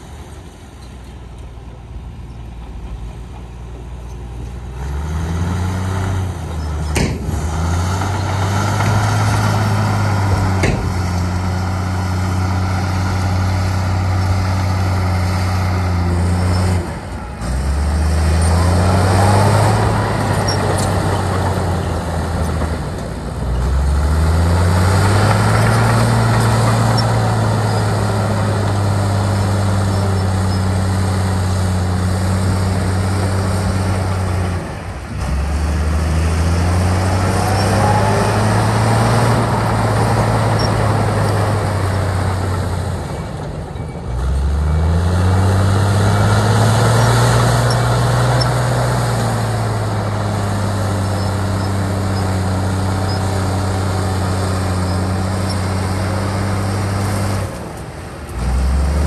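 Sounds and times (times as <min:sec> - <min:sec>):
heavy diesel engine under load: 0:00.0 - 0:59.0
sharp knocks: 0:06.9 - 0:07.6, 0:10.4 - 0:11.3.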